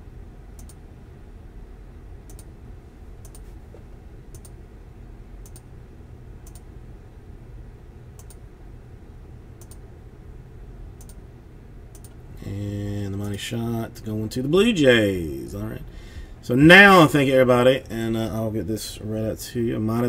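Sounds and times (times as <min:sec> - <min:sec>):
low background noise: 0:00.0 - 0:20.0
computer mouse clicking: 0:00.6 - 0:00.8, 0:02.3 - 0:02.5, 0:03.2 - 0:03.5, 0:04.3 - 0:04.6, 0:05.4 - 0:05.7, 0:06.4 - 0:06.7, 0:08.2 - 0:08.4, 0:09.6 - 0:09.8, 0:11.0 - 0:11.2, 0:11.9 - 0:12.2.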